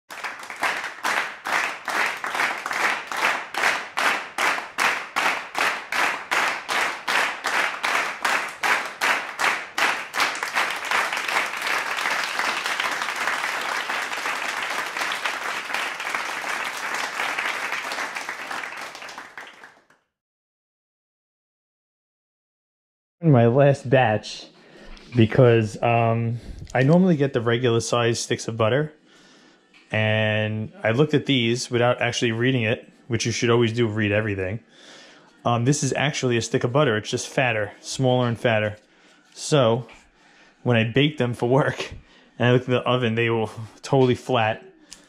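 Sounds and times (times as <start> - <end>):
crowd clapping in rhythm: 0.0 - 20.0
crowd applause: 0.1 - 19.9.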